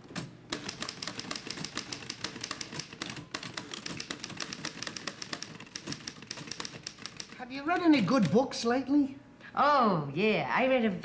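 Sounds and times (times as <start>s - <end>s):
manual typewriter typing: 0.1s - 7.9s.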